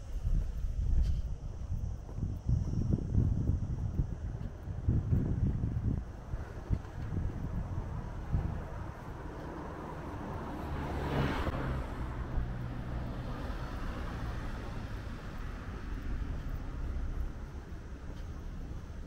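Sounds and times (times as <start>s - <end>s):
low traffic rumble: 0.0s - 19.0s
car driving past: 7.4s - 17.7s.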